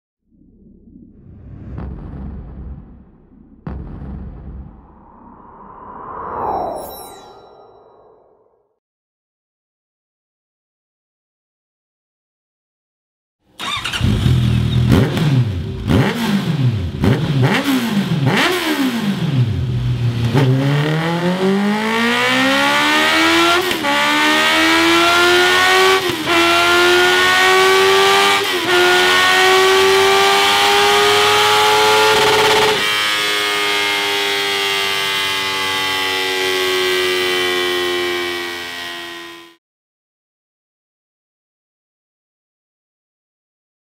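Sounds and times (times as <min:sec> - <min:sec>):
motorcycle engine revving: 0:13.6 - 0:39.6.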